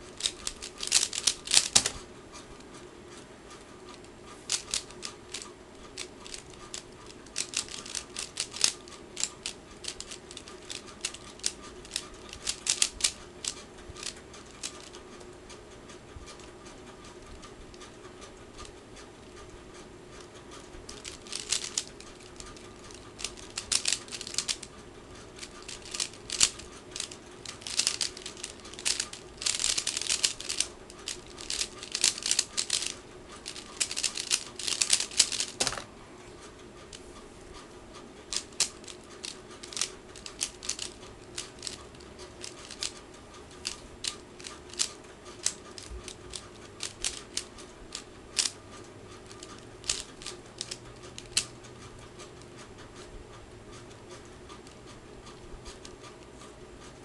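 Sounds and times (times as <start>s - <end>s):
puzzle cube plastic clicks: 0.2s - 2.1s, 4.5s - 15.0s, 20.9s - 24.7s, 25.4s - 35.9s, 38.3s - 48.6s, 49.2s - 51.5s.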